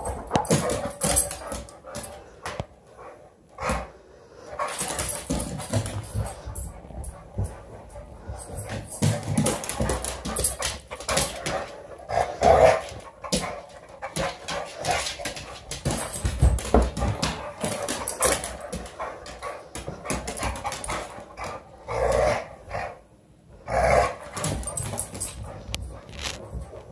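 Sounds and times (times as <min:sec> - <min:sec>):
scuffling on hardwood floor: 0:24.4 - 0:26.9.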